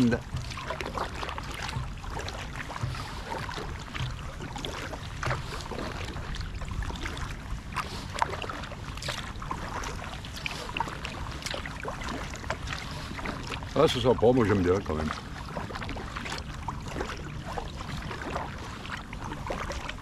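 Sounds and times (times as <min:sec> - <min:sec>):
paddle pulling through water: 0:00.0 - 0:20.0.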